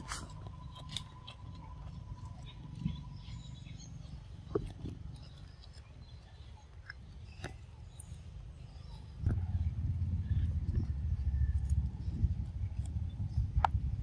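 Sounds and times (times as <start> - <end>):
monkey chewing cardboard carton: 0.0 - 2.7
low rumble: 9.0 - 14.0.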